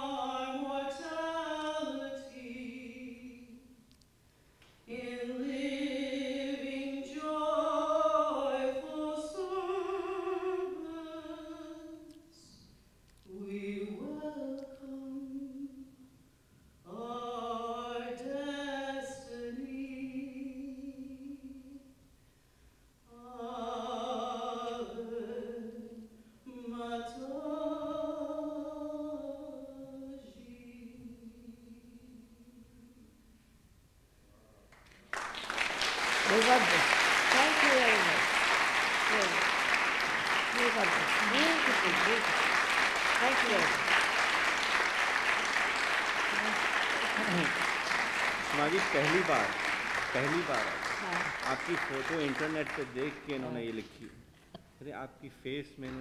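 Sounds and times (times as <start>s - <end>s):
woman singing unaccompanied: 0.0s - 3.8s, 4.9s - 12.6s, 13.3s - 16.0s, 16.9s - 21.9s, 23.1s - 33.1s, 36.3s - 38.2s, 40.5s - 42.4s, 43.1s - 43.9s.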